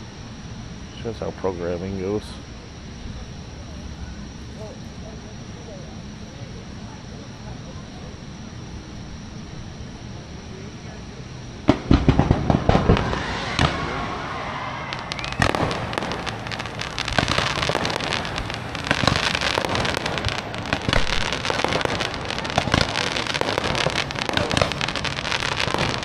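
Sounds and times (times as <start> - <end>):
fireworks crackling: 0.9 - 26.0
fireworks bangs: 11.5 - 26.0.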